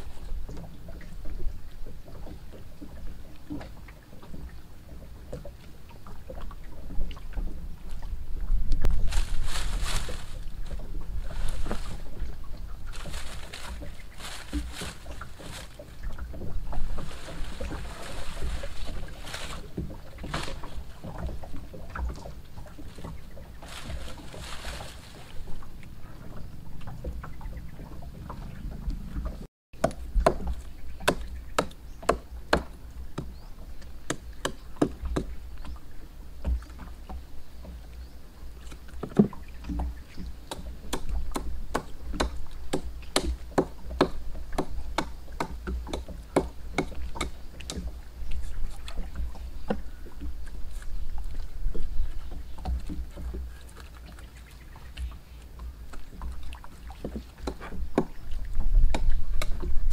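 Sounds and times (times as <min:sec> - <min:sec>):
axe chopping wood: 0:40.5 - 0:47.4.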